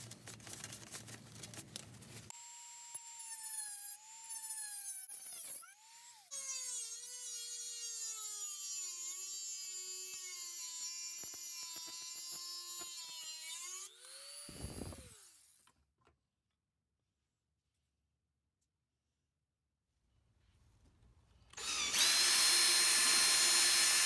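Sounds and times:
rotary tool grinding metal: 21.6s - 24.0s.

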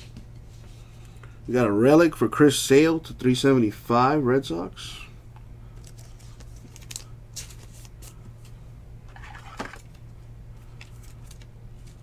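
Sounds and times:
steady low hum: 0.0s - 12.0s
plastic card sleeve rustling: 5.7s - 12.0s.

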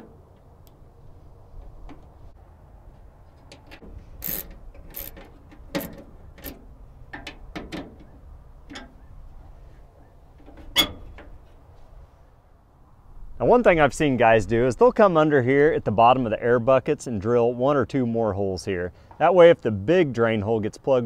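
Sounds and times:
metal vent door clicking and clunking: 0.0s - 0.6s, 3.5s - 9.1s.

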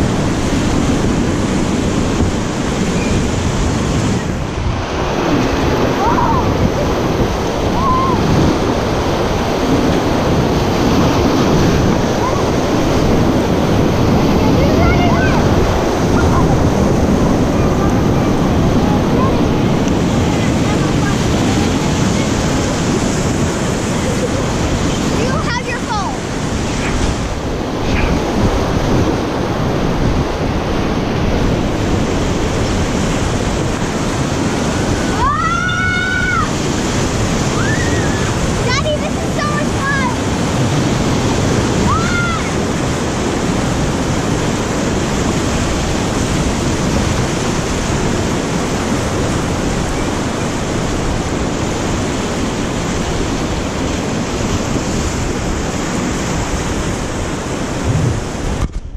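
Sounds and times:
whitewater rapids rushing: 0.0s - 58.6s
child yelling: 6.0s - 6.5s, 7.7s - 8.3s, 14.4s - 15.5s, 35.1s - 36.6s, 37.6s - 40.2s, 41.8s - 42.6s.

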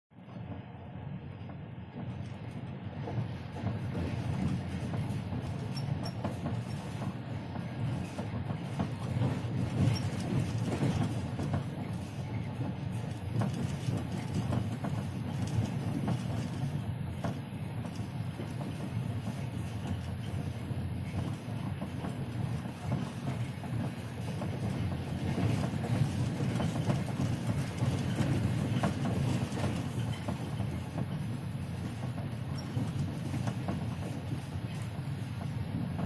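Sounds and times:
train low rumble: 0.1s - 36.0s
wheels clicking on track: 7.9s - 35.5s.

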